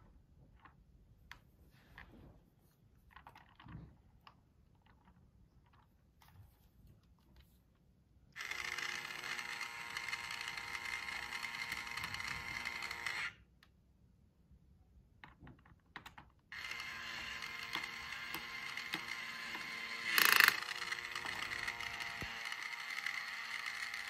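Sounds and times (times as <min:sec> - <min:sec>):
toy drill motor whirring: 0:08.4 - 0:13.4, 0:16.5 - 0:24.0.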